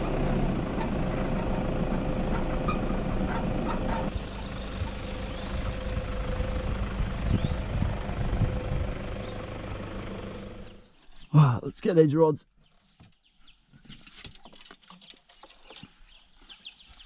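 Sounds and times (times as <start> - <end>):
vehicle engine low rumble: 0.0 - 11.1.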